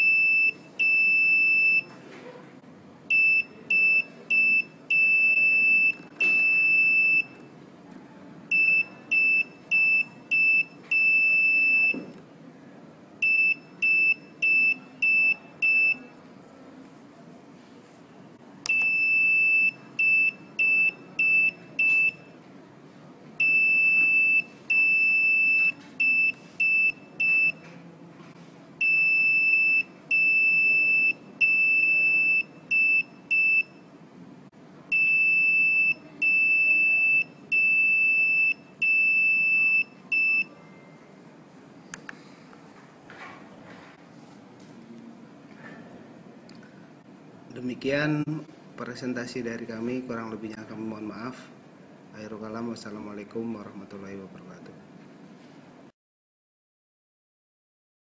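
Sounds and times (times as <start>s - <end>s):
buzzer beeping morse code: 18.7s - 22.2s.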